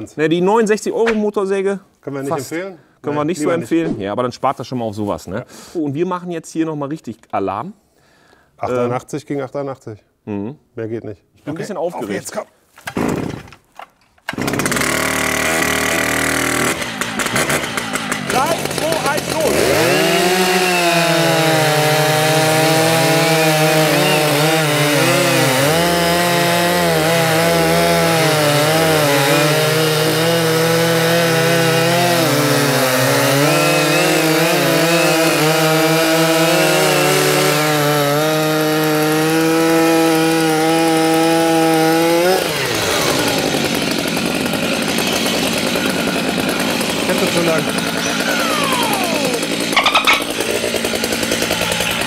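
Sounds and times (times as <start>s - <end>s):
chainsaws cutting a log: 12.8s - 13.6s, 14.2s - 52.0s.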